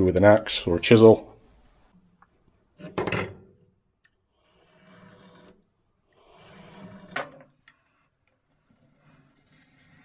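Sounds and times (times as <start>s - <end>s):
scratchy marking strokes on wood: 4.3s - 10.0s.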